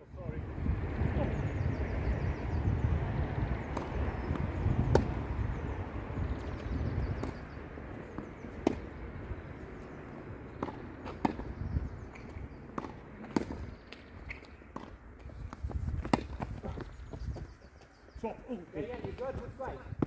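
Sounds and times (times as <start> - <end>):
wind rumble on microphone: 0.0 - 14.3, 15.2 - 20.0
tennis ball pops: 3.7 - 5.2, 8.2 - 8.9, 10.6 - 11.6, 12.2 - 15.0, 16.0 - 16.4.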